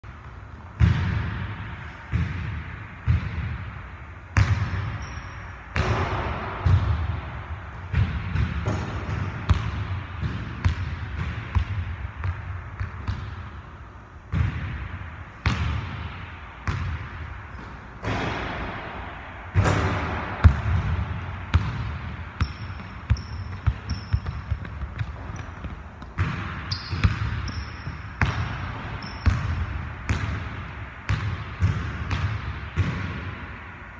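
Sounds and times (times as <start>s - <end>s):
sneakers squeaking on court: 4.4s - 5.6s, 19.6s - 30.4s
basketball bouncing on hardwood floor: 19.6s - 30.4s, 31.1s - 33.2s.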